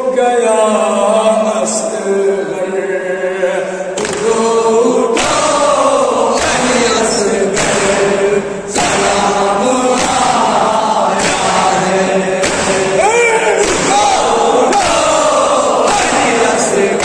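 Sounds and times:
men chanting in unison: 0.0s - 17.0s
chest-beating strikes: 5.2s - 17.0s.

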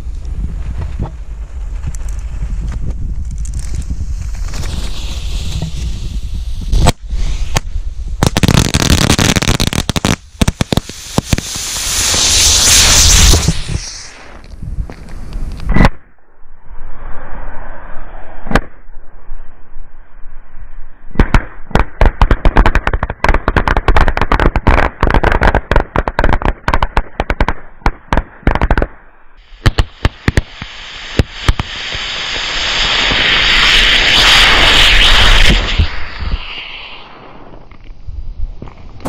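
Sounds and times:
rockets hissing: 0.0s - 15.8s, 29.4s - 39.0s
firecrackers banging: 8.2s - 14.5s.

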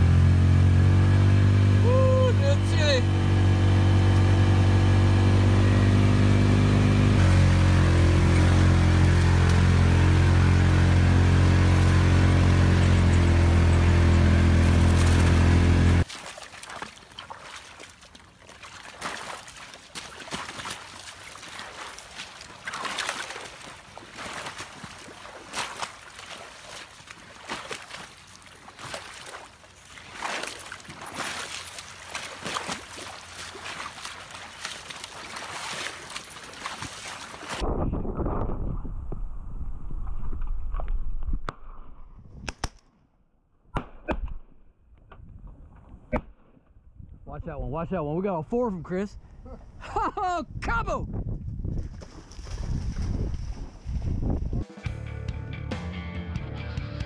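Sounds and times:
vehicle engine running: 0.0s - 16.1s
wading through shallow water: 0.0s - 37.7s, 51.8s - 54.2s.

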